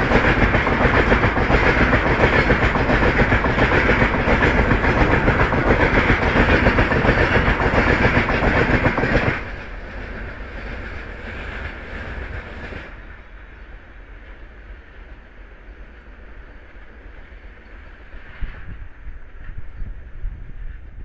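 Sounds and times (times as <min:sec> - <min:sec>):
train wheels clattering over rails: 0:00.0 - 0:14.4.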